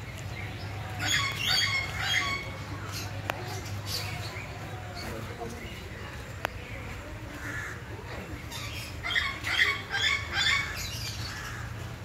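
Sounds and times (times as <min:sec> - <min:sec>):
parrot squawking: 0:09.0 - 0:11.1.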